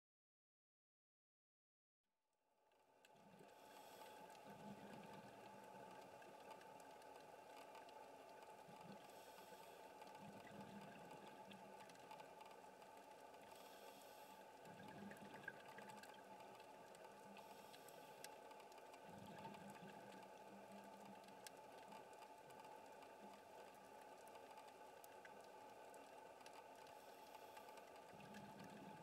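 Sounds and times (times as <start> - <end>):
underwater low hiss: 3.4 - 29.0
small clicks: 14.7 - 28.9.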